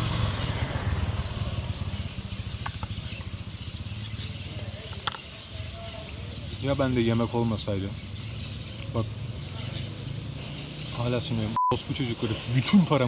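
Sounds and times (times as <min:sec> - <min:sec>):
motorcycle passing by: 0:00.0 - 0:05.6, 0:07.9 - 0:11.6.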